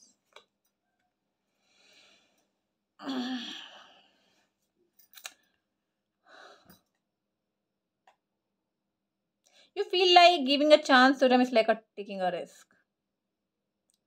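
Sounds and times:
breathy sound: 1.6s - 4.5s.

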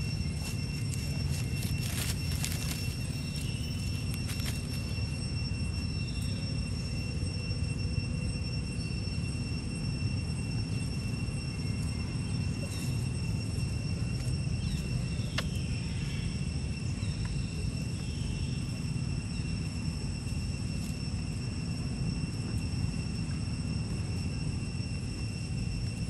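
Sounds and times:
steady low rumble: 0.0s - 8.4s
high-pitched insect drone: 0.0s - 26.0s.

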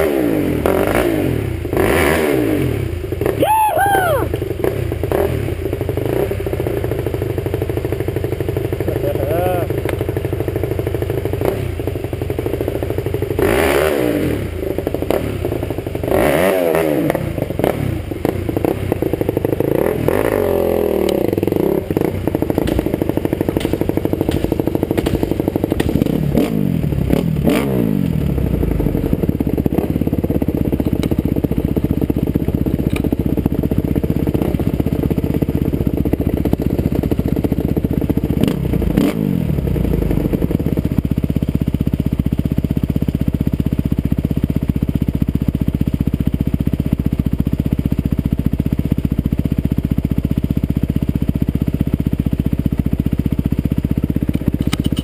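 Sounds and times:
dirt bike engine revving: 0.0s - 7.1s, 10.9s - 12.0s, 12.7s - 31.4s, 38.2s - 40.7s
bike clattering over bumps: 21.4s - 27.2s.

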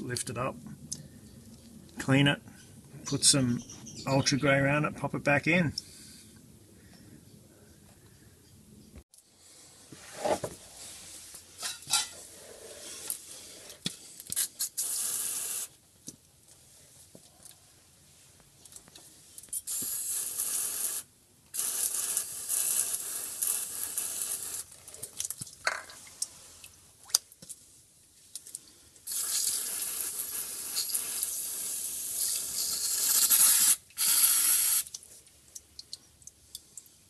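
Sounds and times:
aerosol can spraying: 14.4s - 15.7s, 19.6s - 24.6s, 29.1s - 34.9s.

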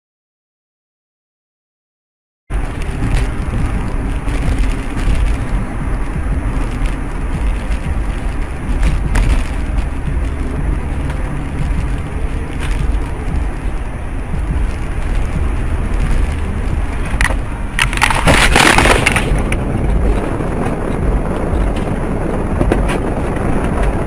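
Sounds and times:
car road and engine rumble: 2.5s - 24.0s
car crash impact: 17.0s - 22.0s.

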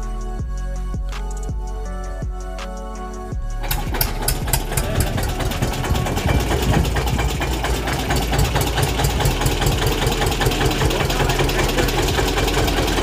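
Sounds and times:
tractor engine idling: 3.6s - 13.0s.

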